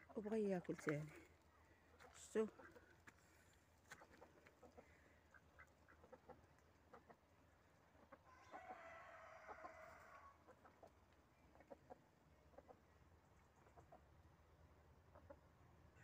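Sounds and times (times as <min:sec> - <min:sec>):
hens clucking: 0:00.0 - 0:14.2, 0:15.0 - 0:16.0
rooster crowing: 0:08.3 - 0:10.4.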